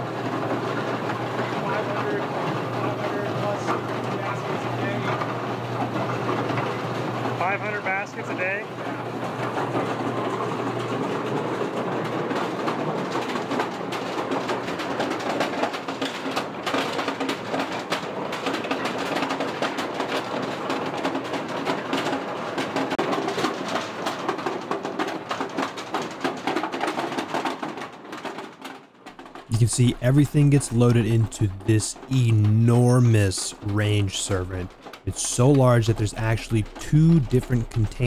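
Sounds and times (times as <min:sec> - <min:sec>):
golf balls clattering through chutes: 0:00.0 - 0:38.0.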